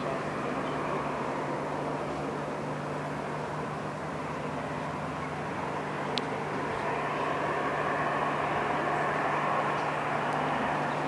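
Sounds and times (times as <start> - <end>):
constant low hum: 0.0 - 11.0.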